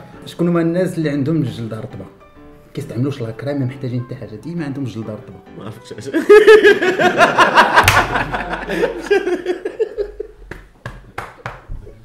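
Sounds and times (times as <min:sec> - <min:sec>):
men laughing: 0:06.1 - 0:10.4.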